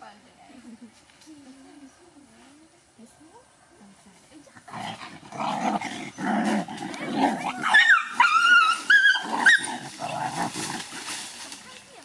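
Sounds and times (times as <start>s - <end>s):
dogs growling: 4.5s - 11.2s
dog yelping and whining: 7.4s - 9.8s.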